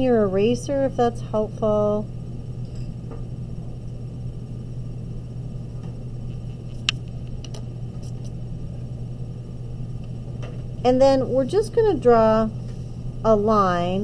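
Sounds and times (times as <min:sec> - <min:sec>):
low electrical hum: 0:00.0 - 0:14.0
sharp click: 0:06.7 - 0:07.6.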